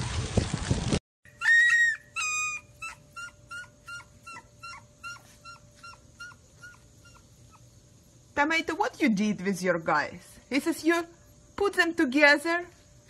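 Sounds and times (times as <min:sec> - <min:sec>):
fountain water splashing: 0:00.0 - 0:01.0
puppies squeaking: 0:01.3 - 0:07.7
puppies whining: 0:01.3 - 0:07.7.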